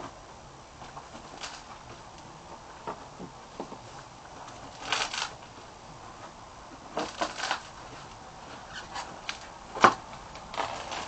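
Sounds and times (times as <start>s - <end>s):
cardboard scraping on concrete: 4.7s - 5.4s, 7.0s - 7.8s, 8.6s - 11.0s.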